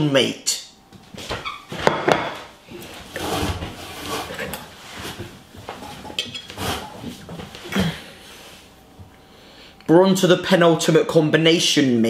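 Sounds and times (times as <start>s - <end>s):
rustling and shuffling: 0.9s - 9.1s.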